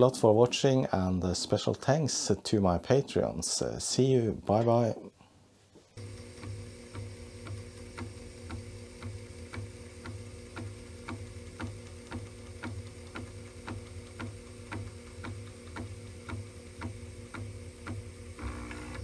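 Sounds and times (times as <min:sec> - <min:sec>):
drive motor hum: 0:05.9 - 0:19.0
disk drive head clicking: 0:06.9 - 0:19.0.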